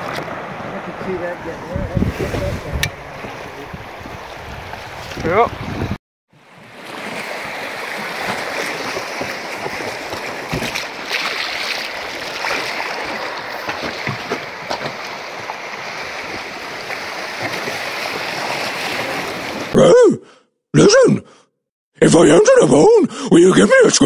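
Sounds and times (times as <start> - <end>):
water splashing against raft: 0.0 - 19.8
river water rushing: 6.4 - 19.7.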